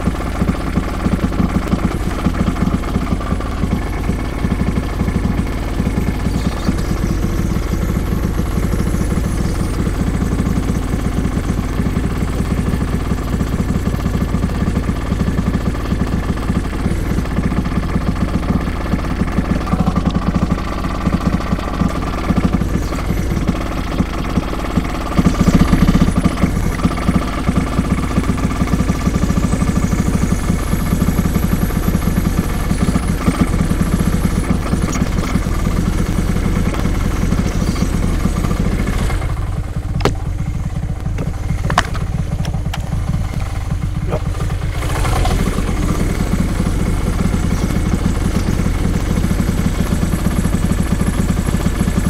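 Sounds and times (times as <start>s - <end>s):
engine running steadily: 0.0s - 52.0s
sharp knocks: 40.0s - 40.3s.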